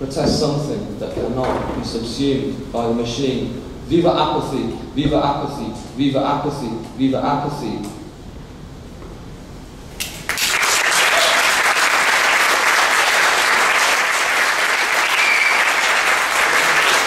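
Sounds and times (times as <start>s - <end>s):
audience applauding: 10.0s - 17.0s.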